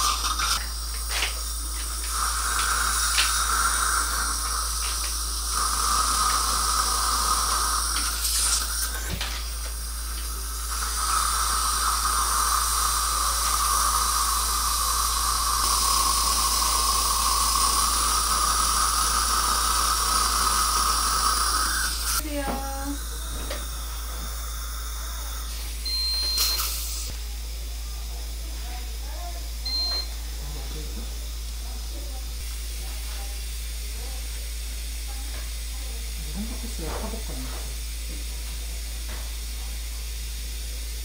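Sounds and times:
irrigation and suction hiss: 0.0 - 27.2
surgical drill whining: 0.8 - 27.1.

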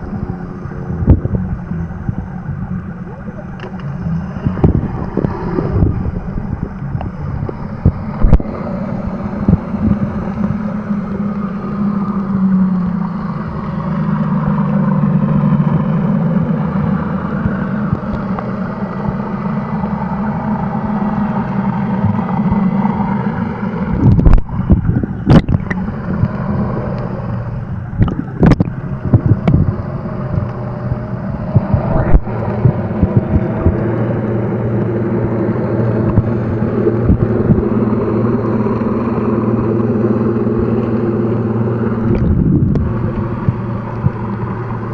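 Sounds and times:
muffled underwater boat motor hum: 0.0 - 44.9.

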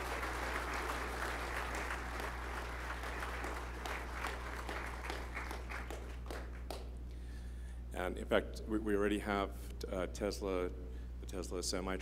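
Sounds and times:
crowd applauding: 0.0 - 6.9.

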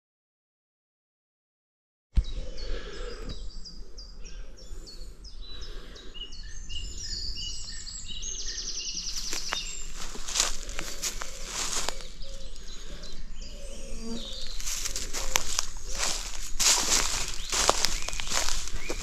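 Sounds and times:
birds chirping and whistling: 2.2 - 19.0.

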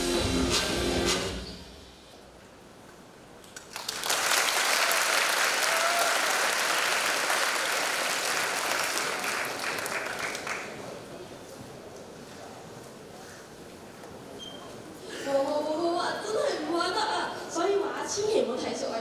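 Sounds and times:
audience applause: 3.6 - 11.0.

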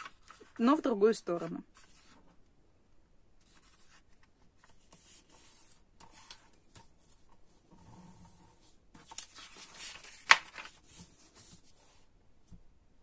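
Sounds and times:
paper rustling: 0.0 - 0.7, 1.7 - 2.2, 8.6 - 12.0
paper snap: 9.1 - 10.7.

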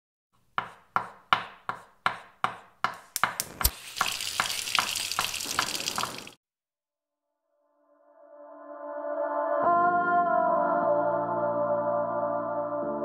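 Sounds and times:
sharp utensil taps: 0.6 - 6.3
frying sizzle: 3.2 - 6.4.

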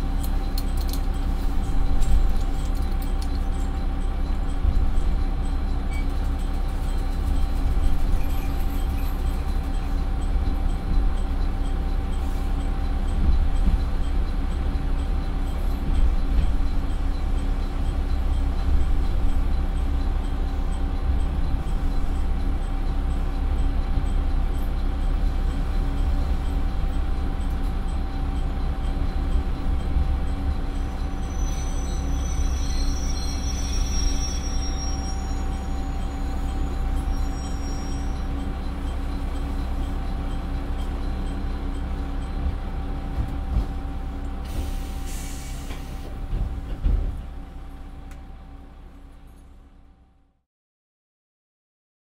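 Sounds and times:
diesel engine running: 0.0 - 50.4
high squeal of brakes: 5.9 - 10.0, 30.3 - 41.9, 44.4 - 46.1
air hiss: 44.4 - 46.0.

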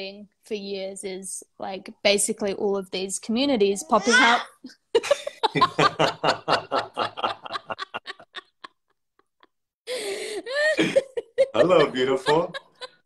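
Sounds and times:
people laughing: 4.9 - 13.0.

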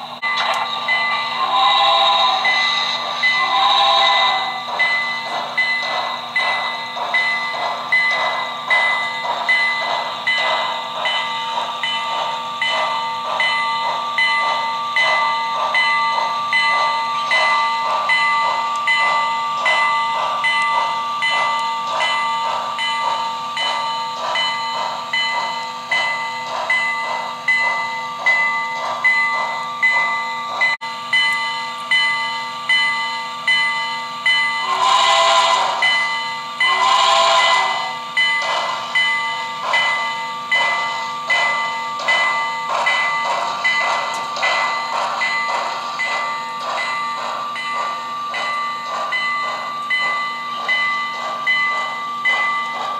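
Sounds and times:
model locomotive chuffing: 0.0 - 52.9
train whistle blasts: 1.4 - 4.7, 34.6 - 36.0, 36.6 - 38.0.

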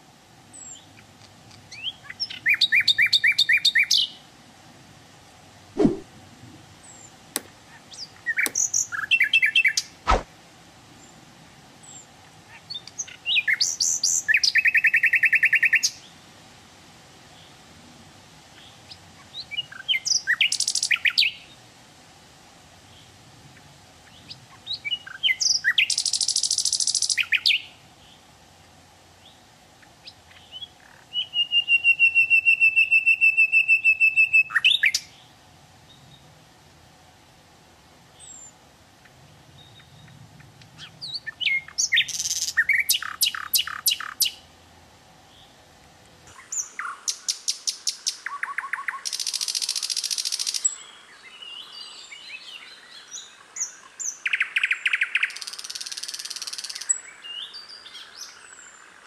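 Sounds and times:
nightingale singing: 6.9 - 10.2, 12.6 - 16.1, 29.2 - 35.3, 38.2 - 44.4, 46.3 - 59.0
sharp click: 8.4 - 8.7, 10.1 - 10.3.

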